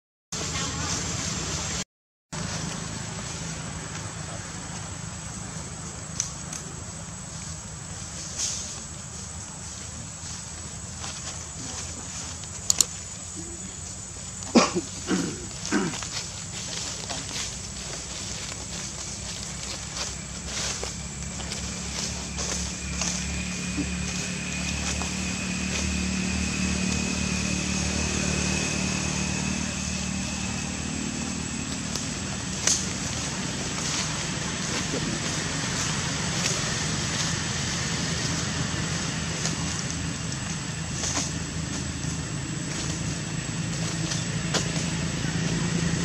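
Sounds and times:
low motor hum: 0:02.4 - 0:46.0
sharp clicks: 0:12.6 - 0:13.0.

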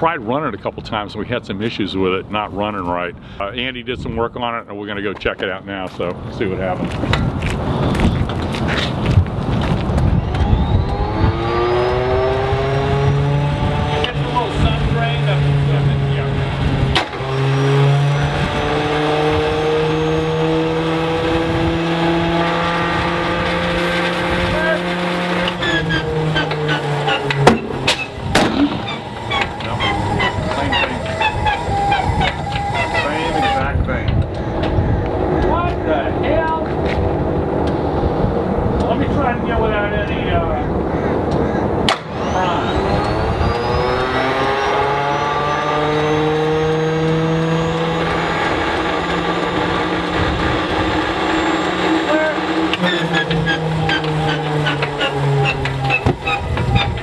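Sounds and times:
radial aircraft engine running: 0:07.0 - 0:57.0
engine backfire bang: 0:16.7 - 0:18.6, 0:22.4 - 0:34.8, 0:41.8 - 0:43.1
engine pops: 0:24.4 - 0:34.8.

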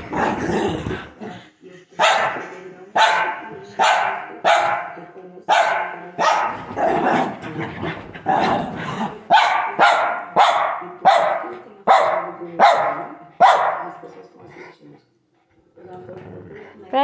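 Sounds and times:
dog barking: 0:02.0 - 0:02.4, 0:03.0 - 0:06.6, 0:09.3 - 0:14.0.

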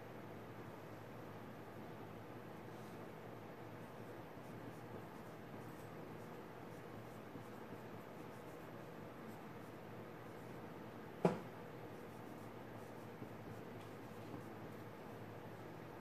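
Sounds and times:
pencil scratching on paper: 0:03.9 - 0:10.6, 0:11.8 - 0:15.2.

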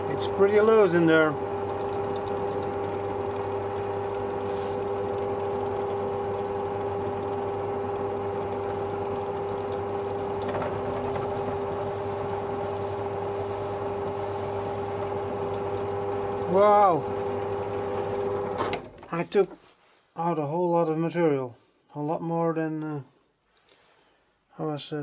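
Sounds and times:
drill press motor hum: 0:00.0 - 0:19.1
drill scratchy cutting plastic: 0:08.2 - 0:18.7.

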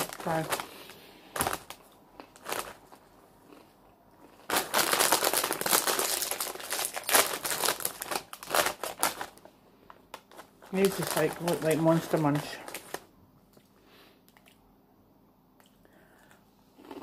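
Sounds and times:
crisp packet crinkling: 0:00.0 - 0:13.1.

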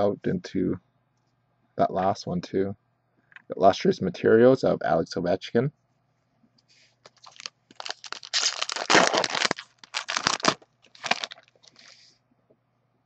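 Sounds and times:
wrapper tearing and crinkling: 0:07.1 - 0:11.8.

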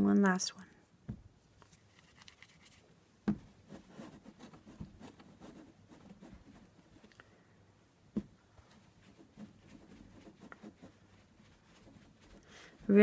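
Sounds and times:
hands rubbing clay on table: 0:01.5 - 0:07.2, 0:08.2 - 0:13.0
clay thumping on table: 0:03.2 - 0:03.6.

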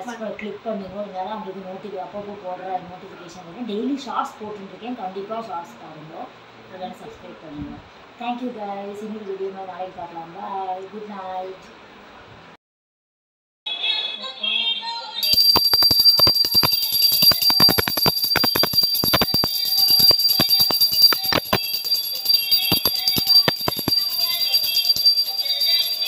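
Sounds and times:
brass hand bell ringing: 0:15.2 - 0:26.0.

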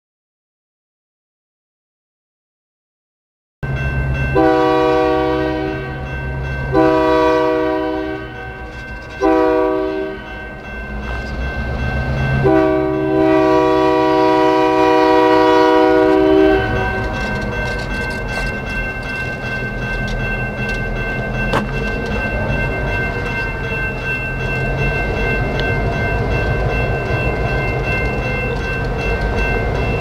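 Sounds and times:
locomotive air horn blasts: 0:04.4 - 0:06.1, 0:06.7 - 0:08.5, 0:09.2 - 0:10.3, 0:12.4 - 0:17.2.

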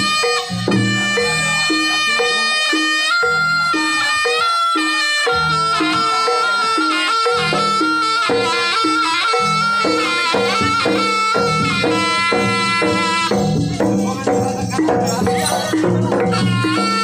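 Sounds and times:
shrill reed trumpet melody: 0:00.0 - 0:13.8, 0:16.2 - 0:17.0
drums: 0:00.0 - 0:17.0.

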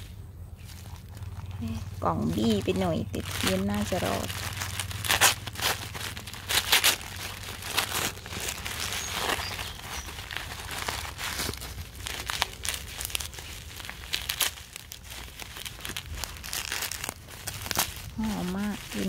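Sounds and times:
paper and bubble wrap crinkling: 0:00.0 - 0:19.0.

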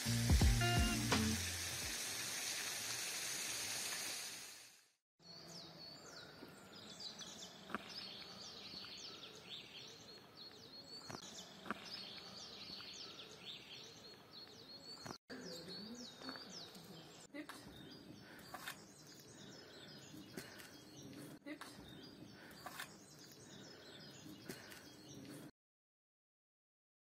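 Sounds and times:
steady hiss: 0:00.0 - 0:04.8
small birds chirping: 0:05.2 - 0:25.5.

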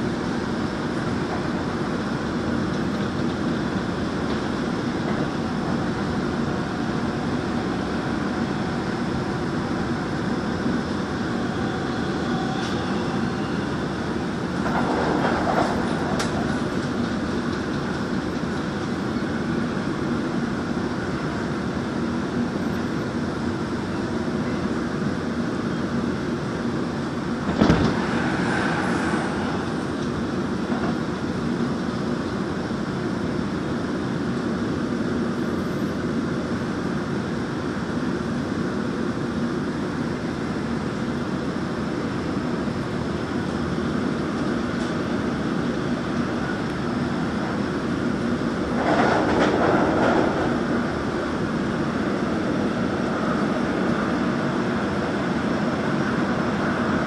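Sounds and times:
train wheels rumbling on rail: 0:00.0 - 0:57.0.

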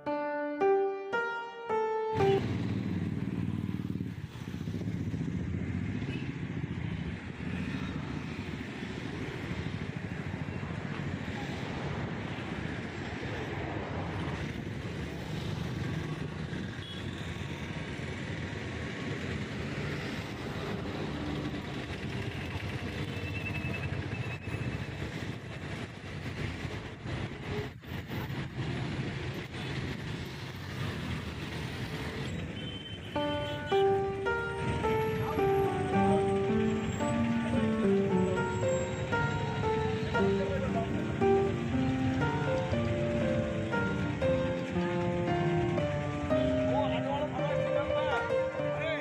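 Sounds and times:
plucked keyboard music: 0:00.0 - 0:03.4, 0:33.2 - 0:49.0
vehicle engine and road rumble: 0:02.3 - 0:33.8, 0:34.6 - 0:47.5.

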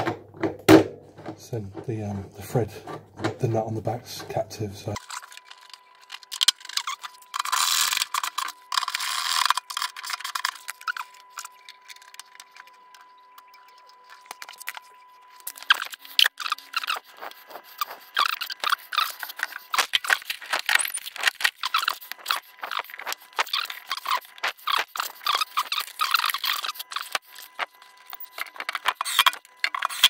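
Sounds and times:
faint steady whine: 0:00.0 - 0:30.0
rustling and scraping: 0:14.0 - 0:30.0
plastic parts clicking: 0:18.2 - 0:30.0.

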